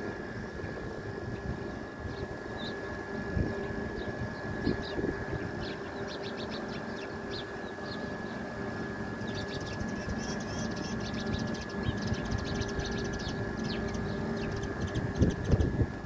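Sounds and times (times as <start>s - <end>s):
machine hum: 0.0s - 16.0s
small birds chirping: 3.9s - 8.5s, 9.1s - 15.8s.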